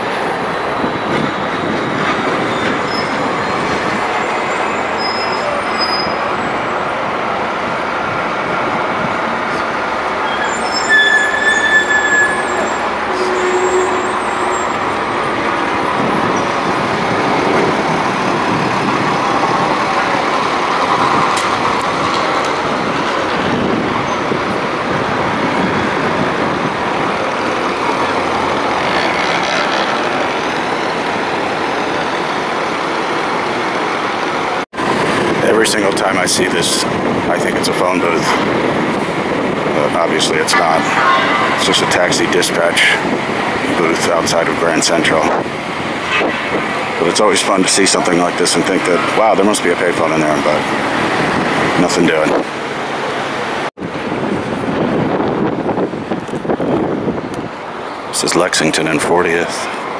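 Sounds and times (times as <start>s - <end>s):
vehicles passing: 0.0s - 59.9s
short high squeals: 4.5s - 6.3s, 10.2s - 15.0s.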